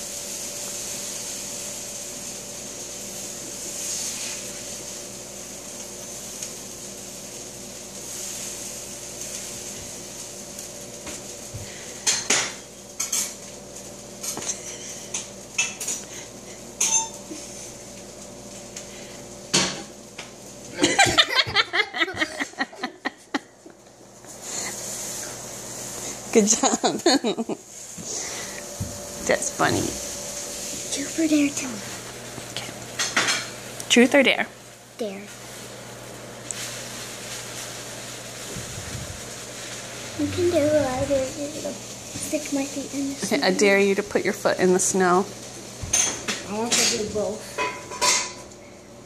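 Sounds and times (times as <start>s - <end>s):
steady hum: 0.0s - 49.0s
child's voice: 35.0s - 35.3s, 40.2s - 43.3s, 46.5s - 47.5s.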